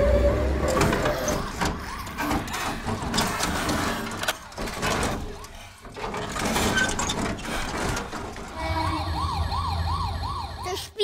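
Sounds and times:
plastic toy car clattering: 0.7s - 8.6s
faint toy siren warbling: 8.6s - 11.0s.

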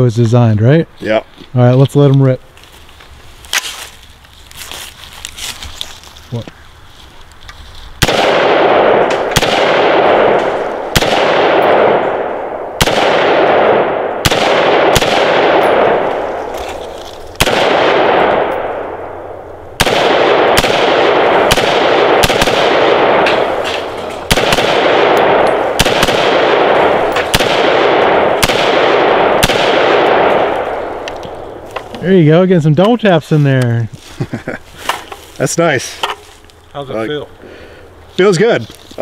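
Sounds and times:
rifle shots: 8.0s - 16.6s, 17.4s - 31.6s.

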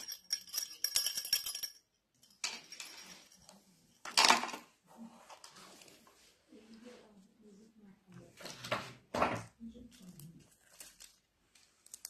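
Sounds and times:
small items clicking and clinking: 0.0s - 4.6s, 9.8s - 12.0s
plastic wrappers crinkling: 9.7s - 12.0s.

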